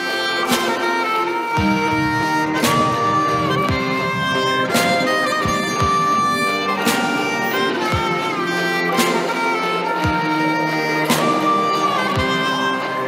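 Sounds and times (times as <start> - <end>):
violin melody: 0.0 - 13.0
drum and cymbal hits: 1.6 - 10.3.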